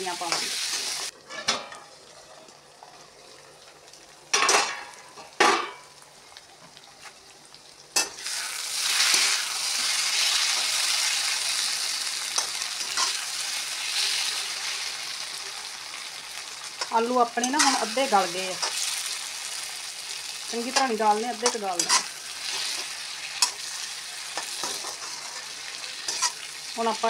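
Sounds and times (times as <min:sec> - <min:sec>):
food sizzling in oil: 0:00.0 - 0:27.0
scraping strokes in pan: 0:21.8 - 0:26.4.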